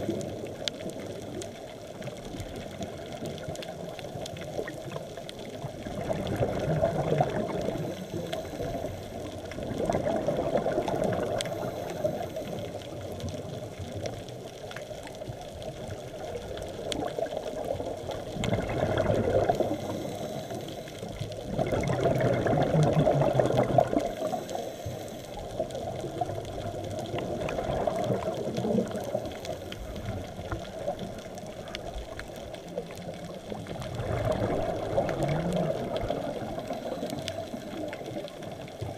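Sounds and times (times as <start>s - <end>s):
underwater wash of water: 0.0s - 38.9s
diver's exhaled bubbles: 5.8s - 8.6s, 9.6s - 12.2s, 18.2s - 20.4s, 21.4s - 24.5s, 25.6s - 31.0s, 33.6s - 38.3s.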